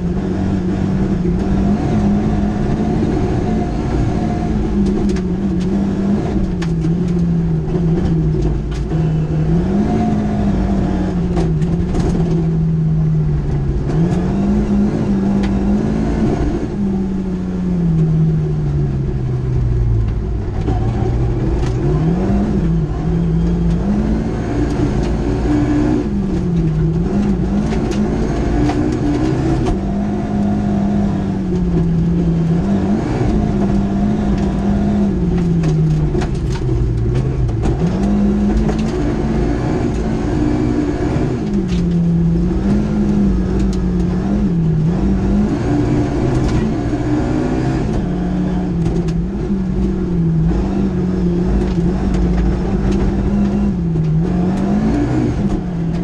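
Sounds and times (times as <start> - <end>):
rally car engine revving: 0.0 - 56.0.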